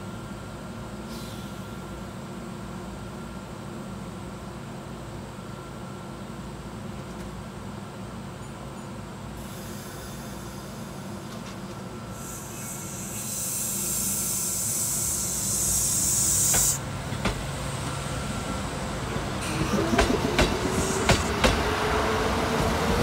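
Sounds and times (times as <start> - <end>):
train equipment humming: 1.6 - 23.0
compressed air hiss: 12.1 - 16.9.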